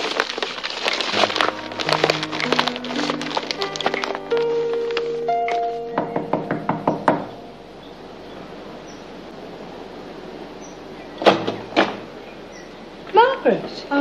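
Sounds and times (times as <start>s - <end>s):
faint steady hiss: 0.0s - 14.0s
knocking on wooden door: 6.0s - 7.3s.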